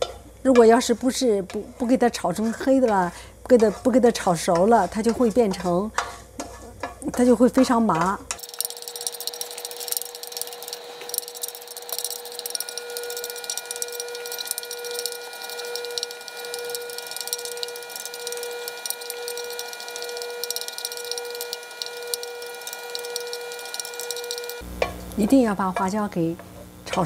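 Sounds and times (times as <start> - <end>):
peppercorns sizzling in hot oil: 0.8 - 27.0
pulsing pitched hum: 8.4 - 25.6.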